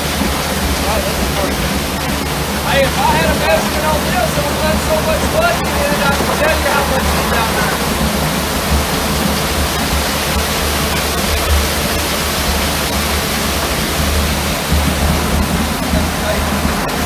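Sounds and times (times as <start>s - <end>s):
wet concrete rushing down chute: 0.0s - 17.0s.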